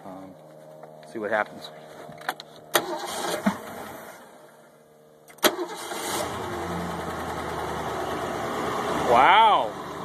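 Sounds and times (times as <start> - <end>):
boat engine starting and idling: 2.7 - 4.6, 5.3 - 10.0.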